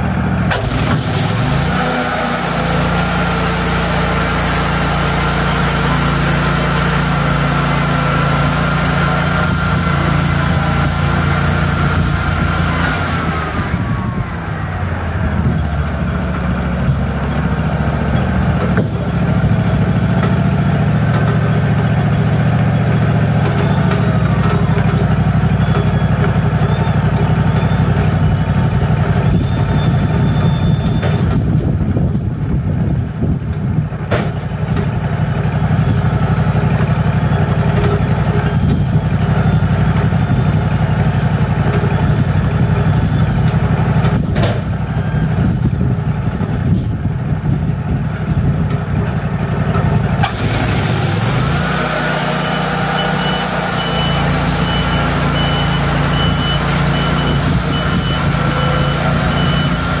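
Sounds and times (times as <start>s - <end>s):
sawmill engine running: 0.0s - 60.0s
high repeating beep: 29.3s - 31.3s, 52.4s - 60.0s
loud hiss: 50.3s - 51.6s.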